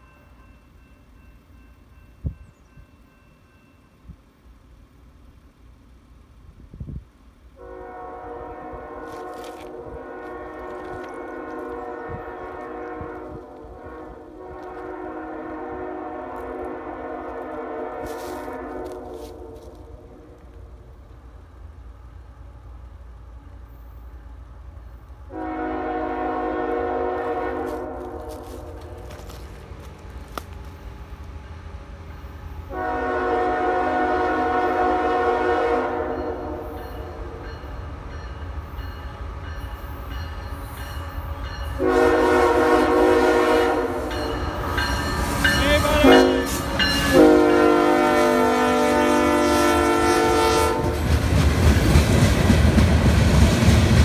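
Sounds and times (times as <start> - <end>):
locomotive air horn blasts: 7.6 - 20.4, 25.3 - 29.4, 32.6 - 37.5, 41.8 - 51.0.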